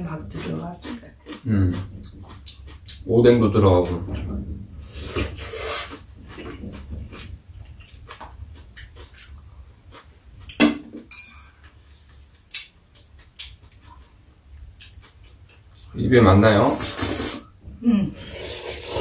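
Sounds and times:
mouth sounds of eating: 0:00.0 - 0:10.0, 0:16.6 - 0:19.0.

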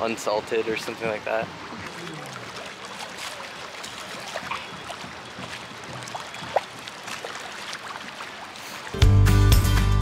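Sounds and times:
lake waves lapping at shore: 0:00.0 - 0:09.2
water plop: 0:01.3 - 0:09.1.

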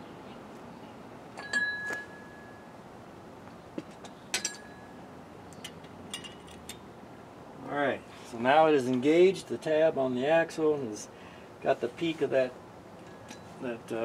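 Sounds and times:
metal washer and nut clinking: 0:05.6 - 0:06.8.

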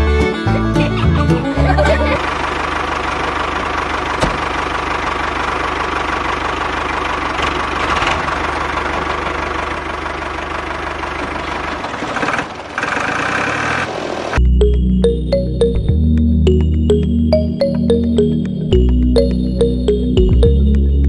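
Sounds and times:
model tractor engine running: 0:02.2 - 0:14.4.

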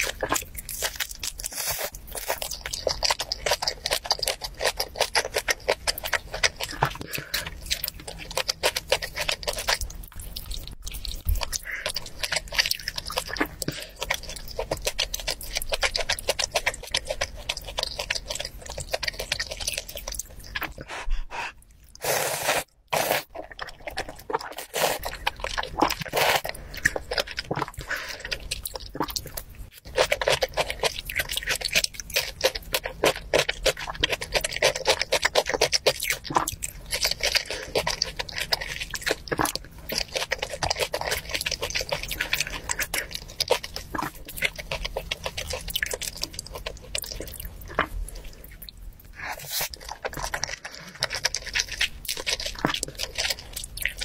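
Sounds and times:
person chewing: 0:00.0 - 0:54.0
person slurping noodles: 0:20.7 - 0:23.6, 0:24.5 - 0:25.2, 0:25.8 - 0:27.0.

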